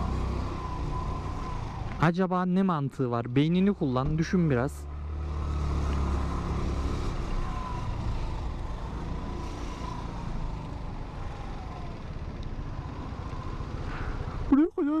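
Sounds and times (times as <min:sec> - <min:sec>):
motor scooter engine: 0:04.9 - 0:14.5
cars and trucks idling: 0:07.3 - 0:14.8.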